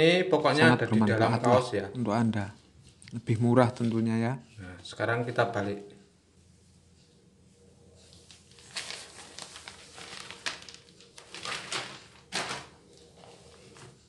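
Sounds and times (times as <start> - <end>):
cloth and plastic tape rustling: 2.4 - 5.7, 6.3 - 14.0.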